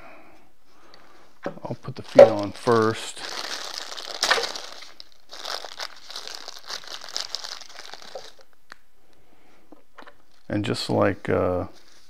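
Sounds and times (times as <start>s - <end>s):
plastic packaging crinkling: 2.0s - 8.6s.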